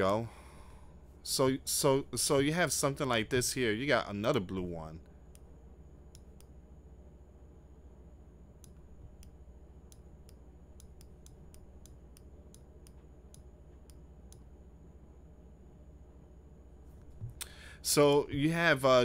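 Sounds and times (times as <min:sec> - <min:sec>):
steady low hum: 0:00.0 - 0:19.0
computer mouse clicks: 0:06.1 - 0:06.5, 0:08.6 - 0:14.5.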